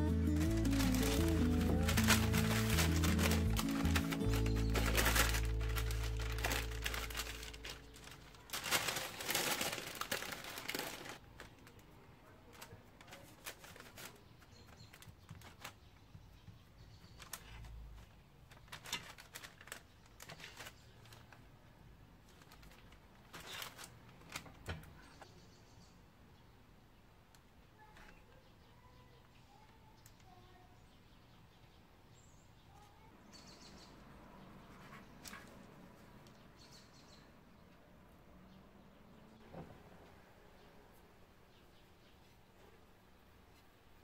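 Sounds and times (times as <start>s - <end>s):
background music: 0.0s - 8.2s
baking paper crinkling: 0.0s - 21.6s, 22.2s - 25.1s.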